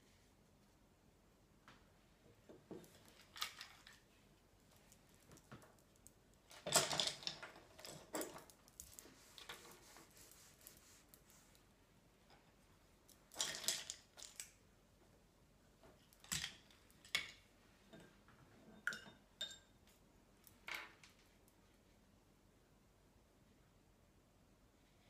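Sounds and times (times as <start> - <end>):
wooden paintbrushes clattering: 2.6 - 11.6, 12.3 - 14.6.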